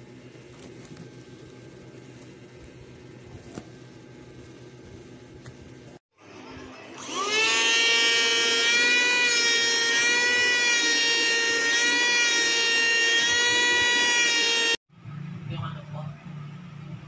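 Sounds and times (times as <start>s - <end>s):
handheld vacuum motor whine: 7.0s - 14.8s.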